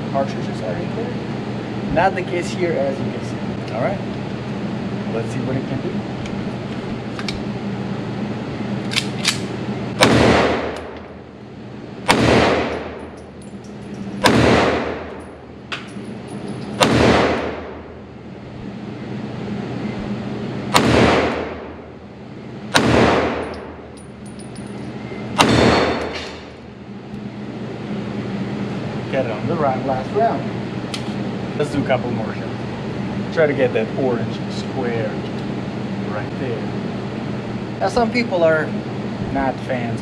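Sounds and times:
pistol shots reverberating: 0:10.0 - 0:10.8, 0:12.0 - 0:12.9, 0:14.2 - 0:15.2, 0:16.8 - 0:17.8, 0:20.7 - 0:21.7, 0:22.7 - 0:23.5, 0:25.4 - 0:26.2.

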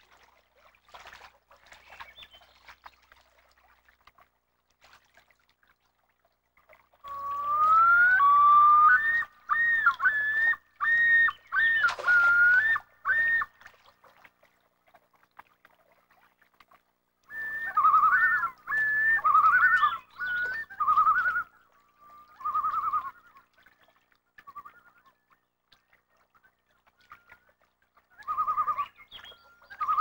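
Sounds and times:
loon calling: 0:07.0 - 0:13.6, 0:17.3 - 0:21.5.

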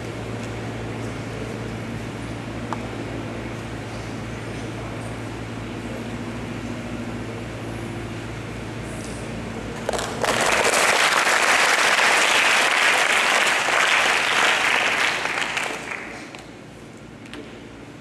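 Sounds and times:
audience applauding: 0:09.9 - 0:16.5.

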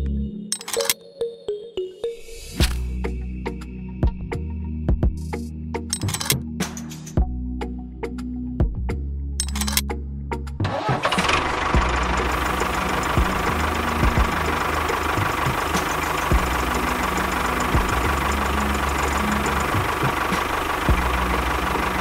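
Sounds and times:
tractor engine chugging: 0:10.7 - 0:22.0.

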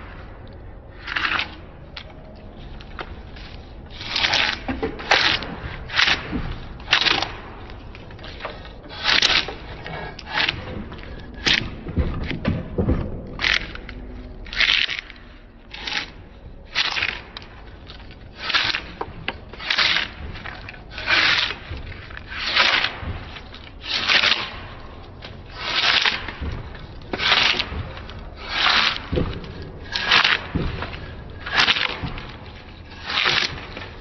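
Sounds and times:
metal blade scraping wood: 0:02.7 - 0:12.4, 0:13.4 - 0:34.0.

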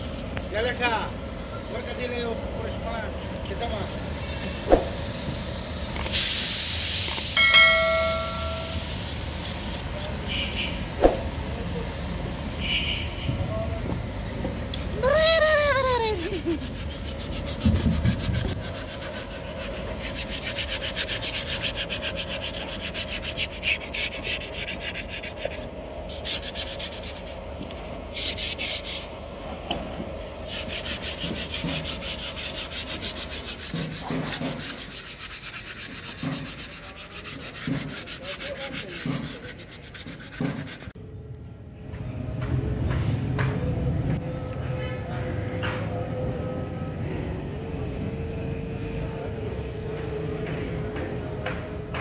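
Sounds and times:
sandpaper rubbing wood: 0:08.1 - 0:10.3, 0:15.8 - 0:27.5, 0:28.1 - 0:29.2, 0:30.3 - 0:41.0.

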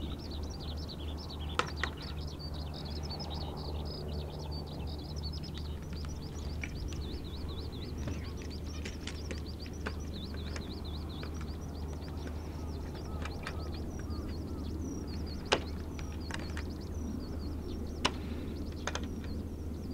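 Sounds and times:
bird warbling song: 0:00.0 - 0:19.9
low hum: 0:00.0 - 0:19.9
sharp clicks: 0:04.9 - 0:19.5.

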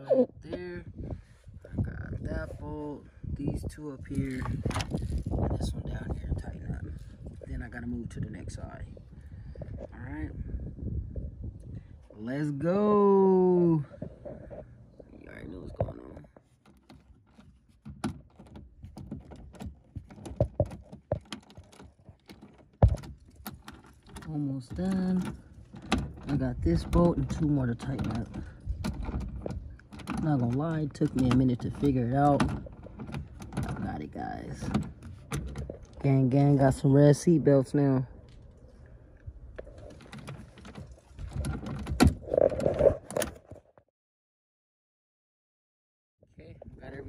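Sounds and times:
light clicks and knocks: 0:15.7 - 0:34.0.

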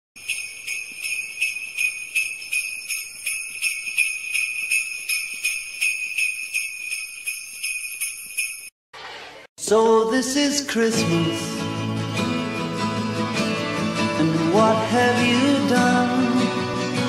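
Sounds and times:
sleigh bells shaken: 0:00.2 - 0:08.8.

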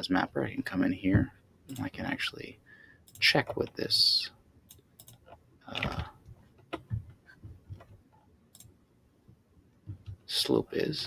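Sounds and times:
soft computer mouse clicks: 0:03.1 - 0:03.3, 0:04.7 - 0:05.3, 0:08.5 - 0:08.8.

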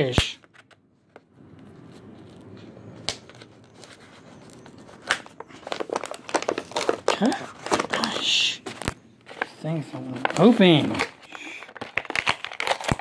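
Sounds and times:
plastic crackles: 0:02.2 - 0:13.0
plastic packaging rustle: 0:03.2 - 0:13.0.

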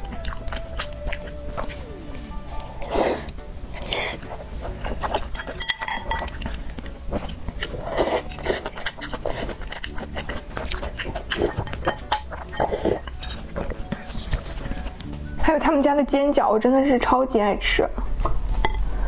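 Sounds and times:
sipping broth: 0:00.0 - 0:15.1
chewing: 0:00.0 - 0:15.4
loud slurping: 0:02.8 - 0:05.6, 0:06.2 - 0:14.5
chopsticks clinking on glass bowl: 0:05.1 - 0:06.5.

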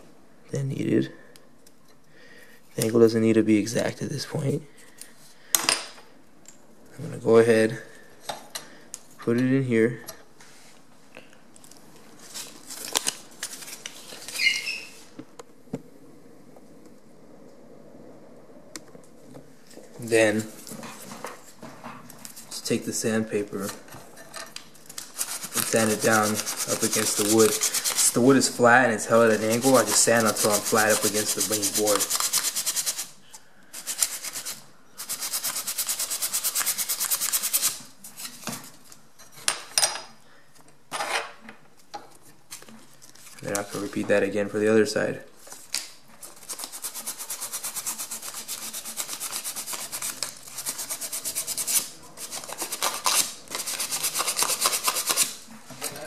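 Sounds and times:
brief squeak: 0:14.3 - 0:15.0
stick and tools scratching: 0:20.0 - 0:33.1, 0:33.8 - 0:38.6, 0:46.2 - 0:55.5
sandpaper rubbing wood: 0:25.1 - 0:33.2, 0:33.8 - 0:37.9, 0:46.2 - 0:55.4.

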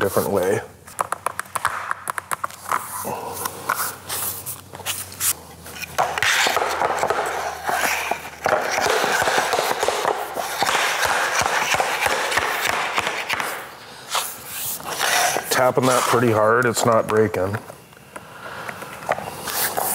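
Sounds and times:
rough scraping noise: 0:14.1 - 0:16.4.

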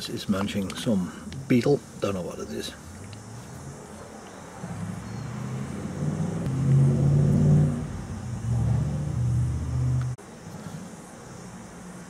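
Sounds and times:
engine revving: 0:04.5 - 0:10.2.

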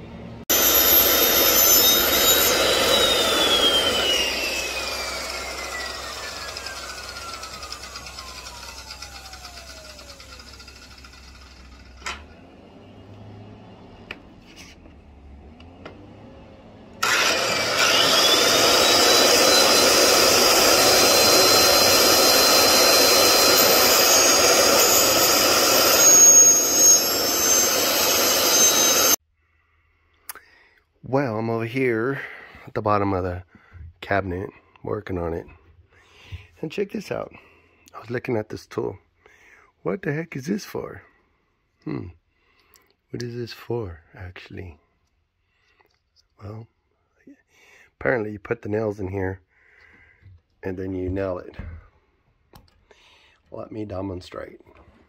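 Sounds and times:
electric motor whining: 0:00.5 - 0:29.2.

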